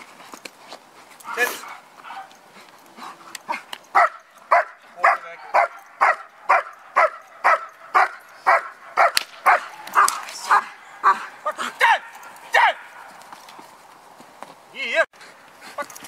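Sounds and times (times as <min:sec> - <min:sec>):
dog barking: 0:01.3 - 0:02.4, 0:03.5 - 0:13.1.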